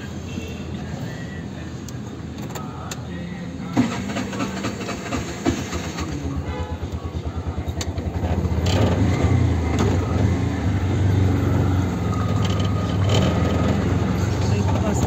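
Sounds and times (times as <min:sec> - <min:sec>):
auto-rickshaw engine chugging: 0:03.7 - 0:15.0.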